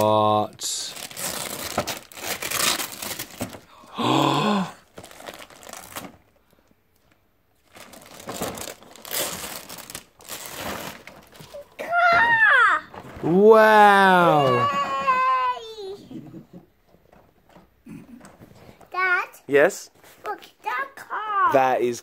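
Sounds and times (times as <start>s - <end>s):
wrapping paper tearing and crumpling: 0.9s - 3.6s, 4.8s - 6.2s, 7.6s - 11.8s.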